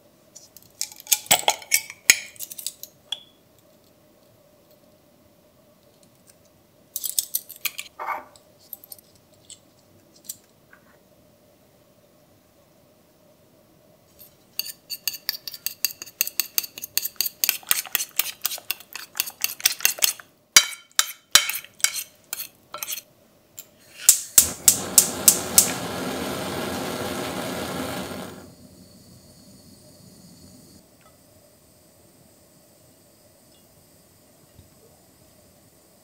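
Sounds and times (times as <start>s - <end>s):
steady noise: 24.3s - 33.4s.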